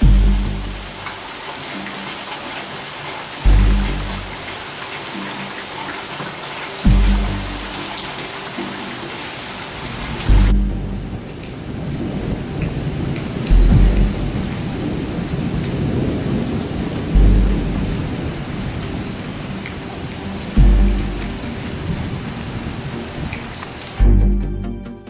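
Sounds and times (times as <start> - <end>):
steady rain: 0.0 - 24.2
thunder booms: 10.2 - 19.2.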